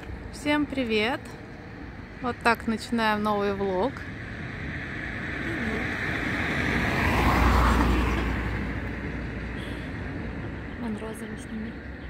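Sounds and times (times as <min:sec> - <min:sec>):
car driving past: 0:03.6 - 0:10.8.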